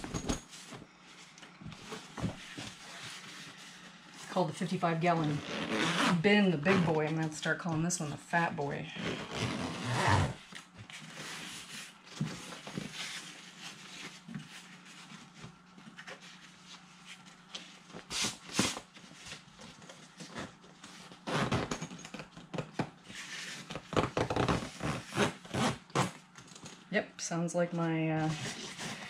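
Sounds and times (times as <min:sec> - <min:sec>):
fabric rubbing and scraping: 0:05.1 - 0:07.3, 0:08.9 - 0:10.5
zipper rasping: 0:05.2 - 0:07.0, 0:08.9 - 0:10.4, 0:21.2 - 0:22.0, 0:23.9 - 0:26.2.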